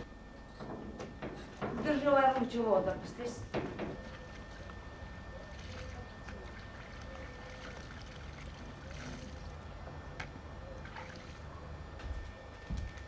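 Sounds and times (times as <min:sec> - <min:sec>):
steady low hum: 0:00.0 - 0:13.0
small knocks on metal tub: 0:03.5 - 0:04.2
water sloshing and splashing: 0:05.4 - 0:09.9, 0:10.8 - 0:11.6.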